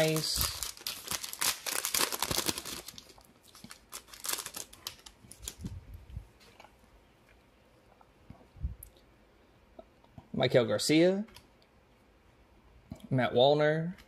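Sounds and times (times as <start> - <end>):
foil wrapper crinkling: 0.0 - 5.7.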